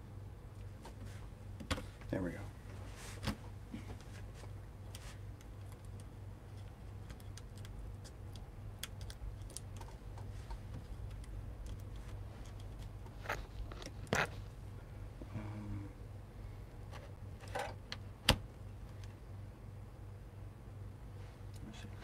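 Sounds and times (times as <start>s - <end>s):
faint low hum: 0.0s - 22.0s
small parts clicking and tapping: 4.9s - 14.4s.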